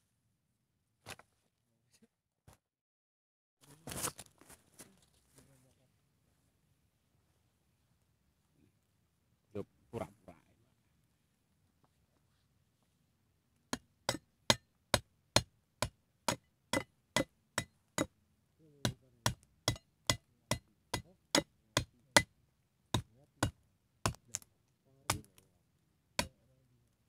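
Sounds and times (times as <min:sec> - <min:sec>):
knife chopping wooden stick: 0:23.0 - 0:24.4.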